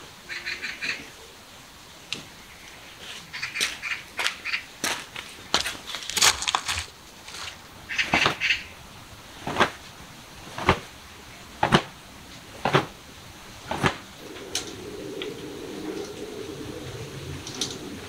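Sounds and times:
feet scuffling: 3.0 - 8.4, 9.4 - 11.0
slipper footsteps slapping: 9.4 - 10.9, 11.6 - 13.0, 13.6 - 14.1.

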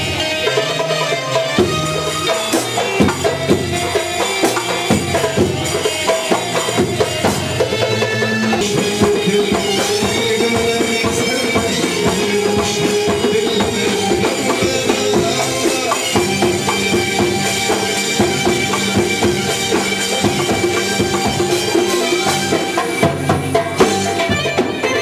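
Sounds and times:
hand percussion strokes: 0.0 - 25.0
held melody line: 0.0 - 25.0.

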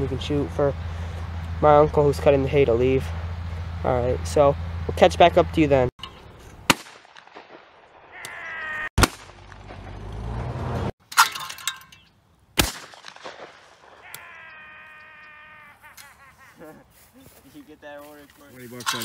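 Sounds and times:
shotgun blasts: 6.6 - 8.1, 9.0 - 10.0, 12.6 - 14.0
drawn-out call: 8.1 - 8.9, 14.0 - 17.1.

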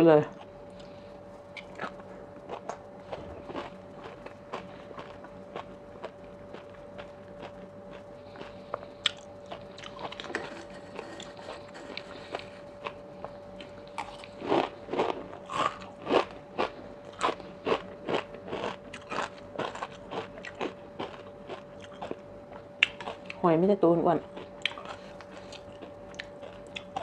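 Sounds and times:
faint steady hum: 0.0 - 27.0
chewing and crunching food: 0.2 - 23.5, 24.2 - 27.0.

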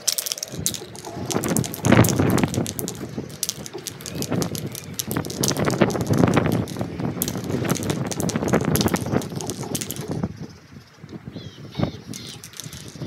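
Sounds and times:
spray can mixing ball rattling: 0.0 - 10.4, 12.1 - 13.0
wind on microphone: 0.5 - 13.0.

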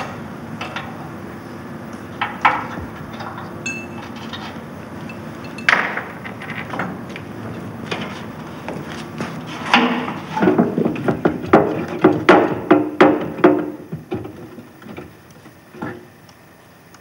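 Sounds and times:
ringing metallic knocks: 3.6 - 4.2, 5.1 - 6.1.

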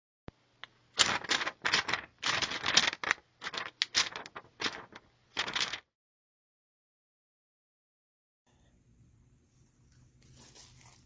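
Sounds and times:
paper crinkling: 1.0 - 5.8, 9.8 - 11.0.

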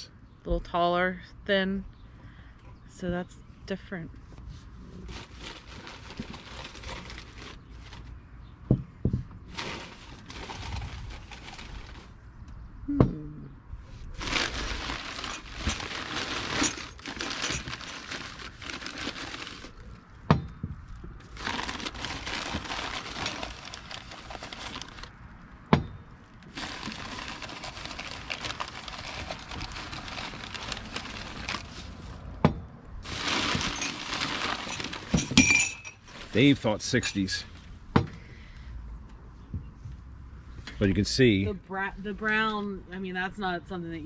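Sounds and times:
paper packing crinkling: 5.0 - 8.2, 9.5 - 12.2, 14.1 - 20.0, 21.2 - 25.1, 26.4 - 32.2, 33.0 - 36.6
glasses knocking and clinking: 35.1 - 36.0.

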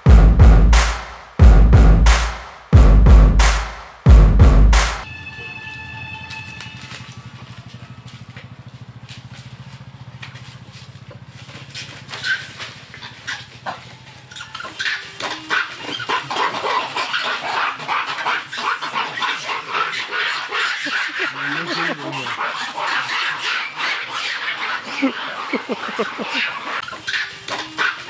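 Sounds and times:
monkeys barking and screeching: 11.0 - 28.0.

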